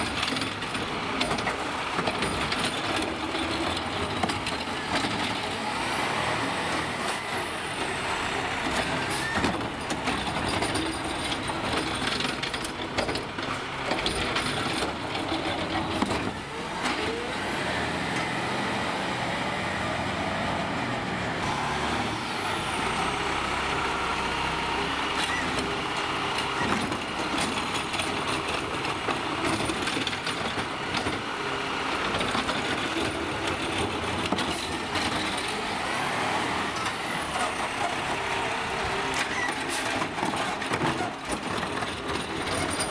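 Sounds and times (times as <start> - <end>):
garbage truck engine running: 0.0 - 42.9.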